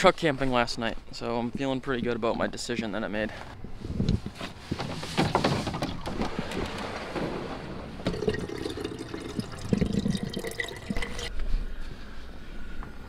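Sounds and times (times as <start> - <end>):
water pouring into pot: 8.1 - 11.3.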